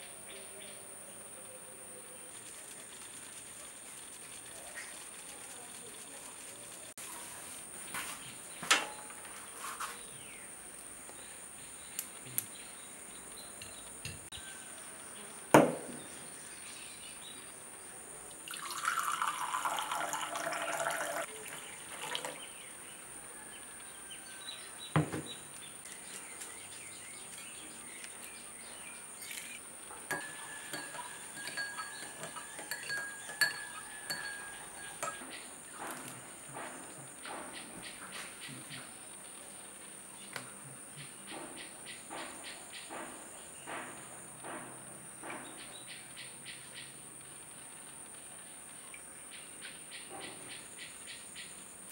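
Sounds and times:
dishes clinking: 0:08.6 - 0:09.3, 0:29.2 - 0:37.5
water poured into a cup: 0:18.4 - 0:22.4
plate and cup knocking on stone: 0:29.3 - 0:37.5.

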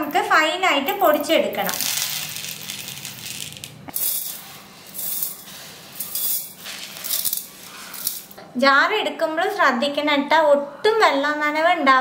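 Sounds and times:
crystals poured onto a plate: 0:00.9 - 0:08.4.

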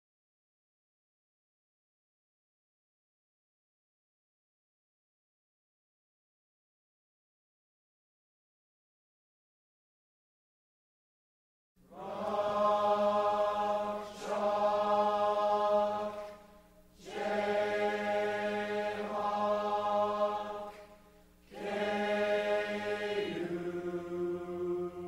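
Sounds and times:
slow choir-like vocal music: 0:11.8 - 0:25.0.

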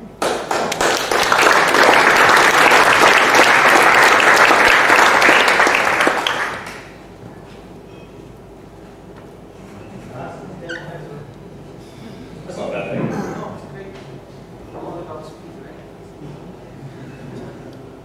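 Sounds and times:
audience applauding: 0:00.2 - 0:07.0.

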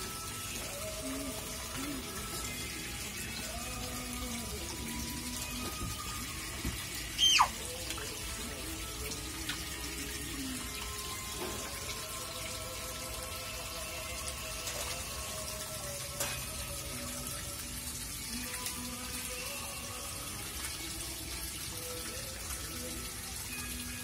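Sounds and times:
fountain splashing trickle: 0:00.0 - 0:24.0
high squeak falling in pitch: 0:07.2 - 0:07.6.

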